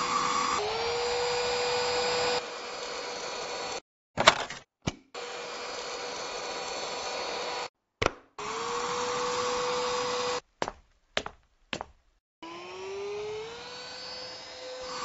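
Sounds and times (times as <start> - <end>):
handheld vacuum motor whining: 0.0 - 3.8, 5.2 - 7.7, 8.4 - 10.4, 12.4 - 15.0.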